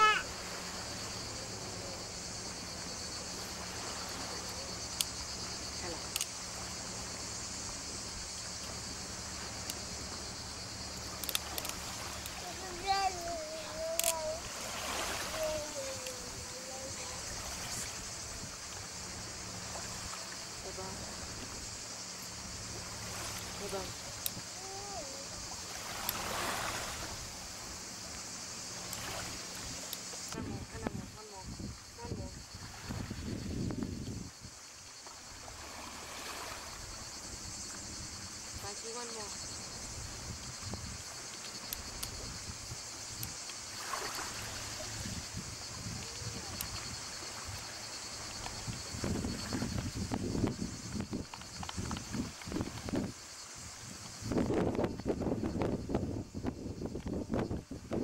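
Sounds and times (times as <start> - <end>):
waves lapping on pebbles: 0.0 - 33.6, 34.4 - 54.7
cicadas chirring: 0.0 - 58.0
steady hiss: 0.0 - 58.0
faint clicks: 6.1 - 6.3, 11.1 - 12.4, 13.9 - 14.2, 41.2 - 42.2, 43.1 - 43.6, 51.1 - 53.0.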